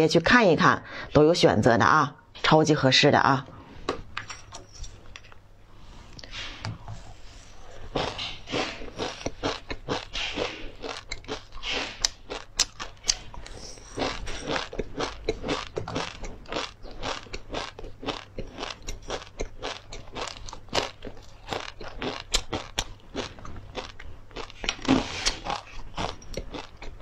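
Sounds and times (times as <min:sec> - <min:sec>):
chewing crunchy snack: 0:07.7 - 0:27.0.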